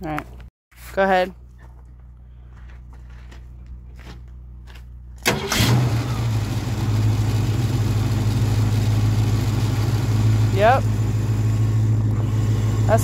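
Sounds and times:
car engine starting and idling: 5.2 - 13.0.

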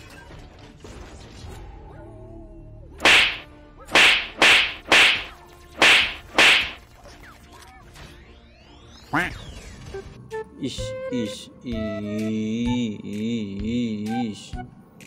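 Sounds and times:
swooshing sweep: 4.0 - 6.8.

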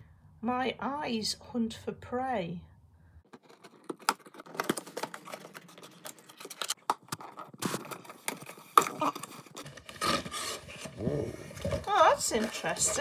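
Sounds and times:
scissors cutting cardboard: 3.4 - 13.0.

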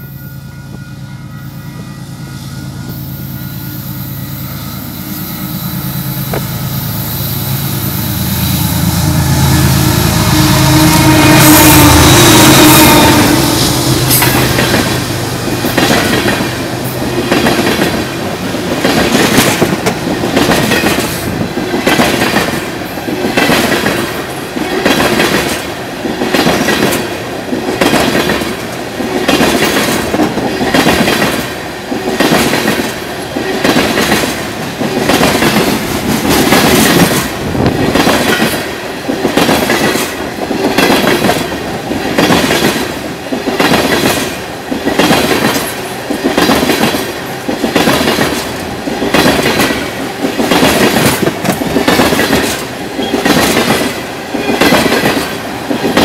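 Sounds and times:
train wheels clacking over rail joints: 12.5 - 56.0.

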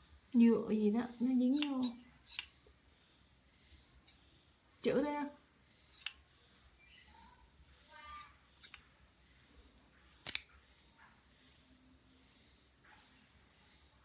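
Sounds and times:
shears blades clicking: 1.5 - 2.6, 6.0 - 6.2, 8.6 - 8.8, 10.2 - 10.5.

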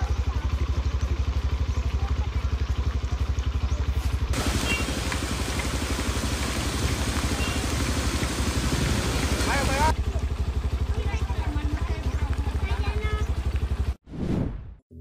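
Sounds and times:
vehicle ploughing through floodwater: 0.0 - 13.8
rain hiss: 4.3 - 9.9.

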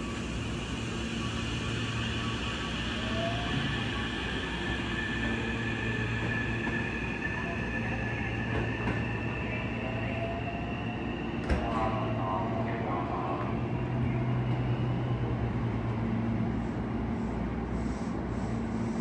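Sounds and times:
electric train motor whine: 0.0 - 11.6
standing train hum: 0.0 - 19.0.

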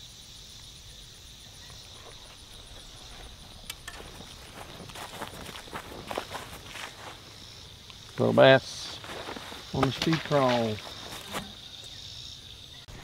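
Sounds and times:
insects chirping: 0.0 - 13.0
footsteps through grass: 1.7 - 11.8.

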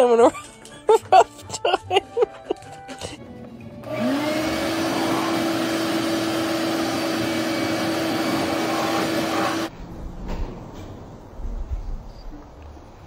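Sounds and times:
vacuum cleaner running: 3.2 - 9.7.

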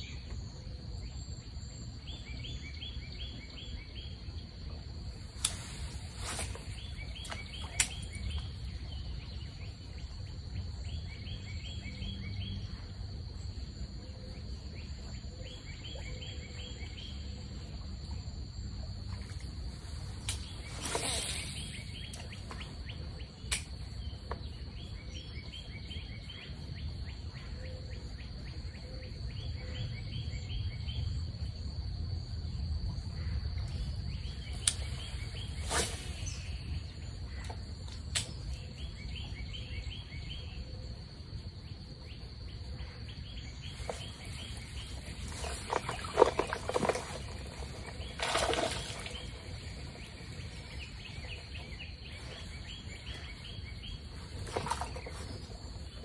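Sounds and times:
birds chirping in trills: 33.2 - 56.0.

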